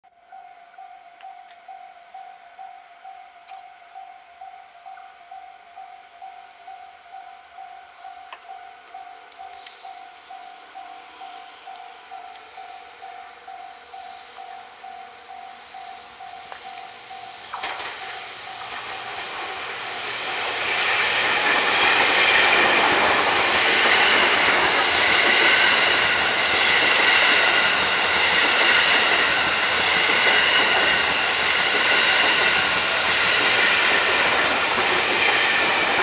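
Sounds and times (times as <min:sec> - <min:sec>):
high ringing tones: 0:00.1 - 0:19.2
train wheels on rails: 0:00.4 - 0:36.0.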